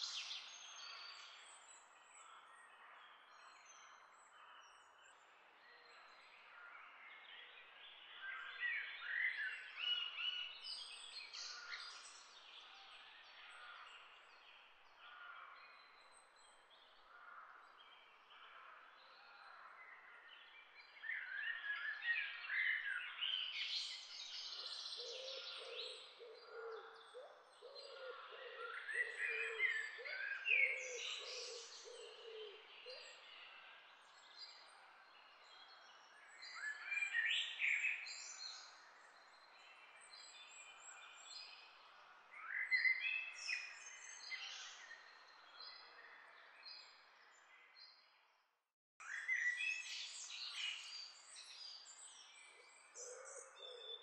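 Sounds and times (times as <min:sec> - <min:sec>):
songbirds twittering: 0:00.0 - 0:48.4, 0:49.0 - 0:54.0
bird hooting or cooing: 0:27.6 - 0:32.6.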